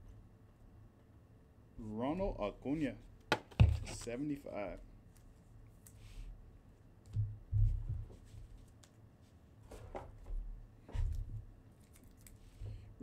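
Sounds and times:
cards thumping on a table: 3.3s - 4.1s.

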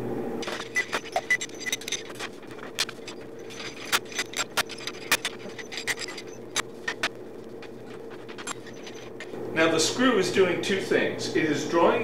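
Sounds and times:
vise screw clicking and clanking: 0.4s - 9.3s.

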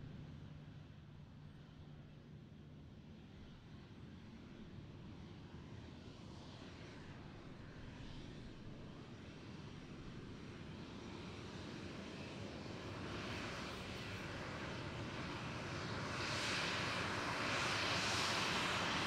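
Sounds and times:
jet airliner engines rushing: 5.1s - 19.0s.

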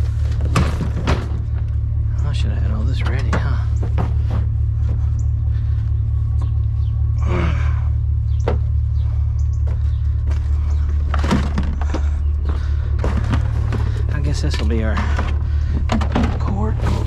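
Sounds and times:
objects knocking and thunking: 0.0s - 2.0s, 2.9s - 5.1s, 8.4s - 17.0s
low rumble: 0.0s - 17.0s.

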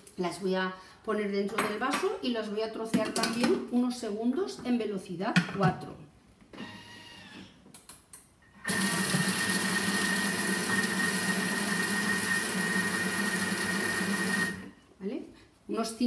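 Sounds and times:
food processor motor whir: 8.6s - 14.7s.

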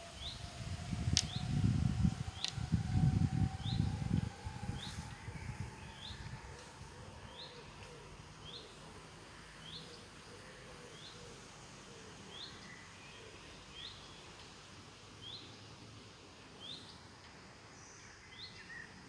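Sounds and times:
faint outdoor hiss: 0.0s - 19.0s
low rumble: 0.3s - 7.3s.

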